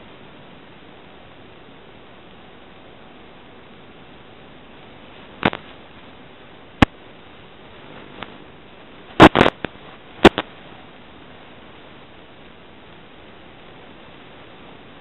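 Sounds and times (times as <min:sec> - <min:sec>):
static hiss: 0:00.0 - 0:15.0
crackling pops: 0:05.4 - 0:05.8, 0:06.8 - 0:07.0, 0:09.1 - 0:10.6.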